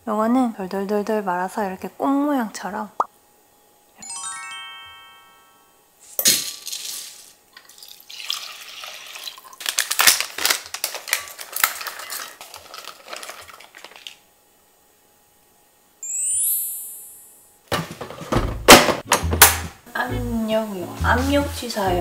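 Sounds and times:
rising chime: 4.0 - 6.0, 16.0 - 17.4.

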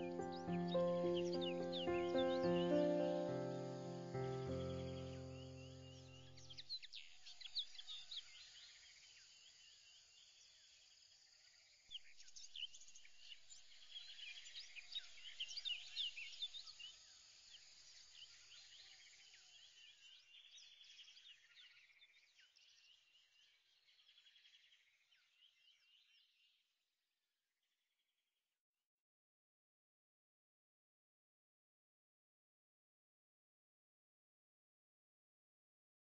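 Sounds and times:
faint birdsong chirps and trills: 0.0 - 26.9.

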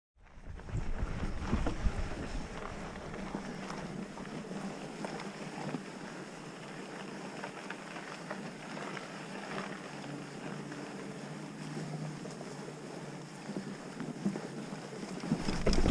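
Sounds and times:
tyre and wind rush: 0.2 - 4.2, 15.3 - 15.9
bike rattles and clicks: 0.2 - 10.4, 13.3 - 15.9.

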